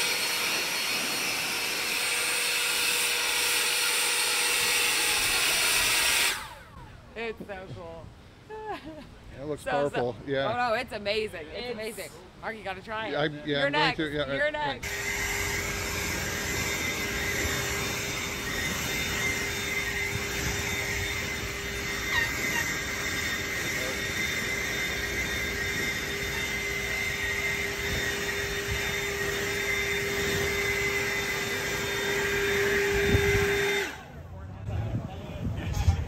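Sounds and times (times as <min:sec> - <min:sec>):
backpack leaf blower running: 0:00.0 - 0:06.7, 0:14.8 - 0:34.1.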